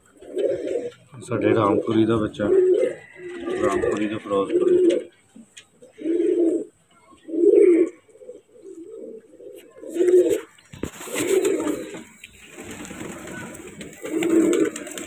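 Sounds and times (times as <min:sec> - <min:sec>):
pigeons cooing: 0:00.0 - 0:15.0
feathers rustling: 0:10.8 - 0:15.0.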